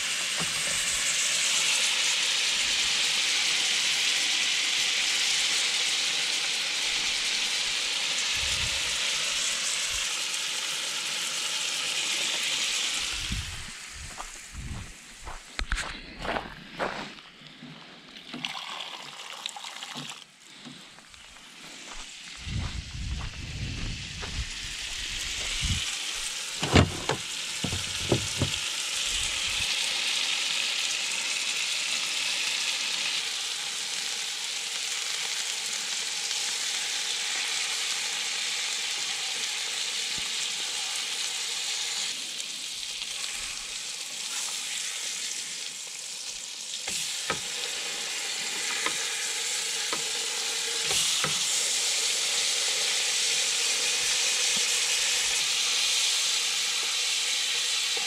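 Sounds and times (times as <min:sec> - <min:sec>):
steaks sizzling in a skillet: 0:00.0 - 0:14.5, 0:24.4 - 0:58.0
sharp knocks: 0:26.6 - 0:28.6.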